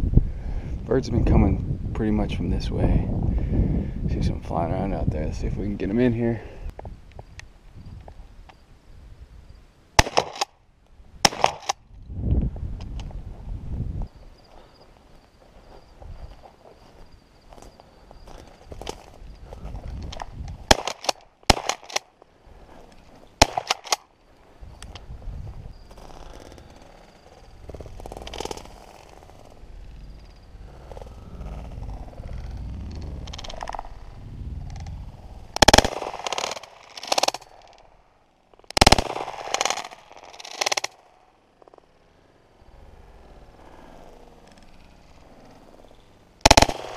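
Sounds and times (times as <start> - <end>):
shotgun shots: 10.0 - 10.5, 11.2 - 11.8, 20.6 - 22.0, 23.4 - 24.0, 35.6 - 37.6, 38.8 - 40.9, 46.4 - 46.9
quieter sharp cracks: 10.0 - 10.6, 11.2 - 11.8, 18.3 - 25.1, 25.9 - 42.0, 46.4 - 46.9.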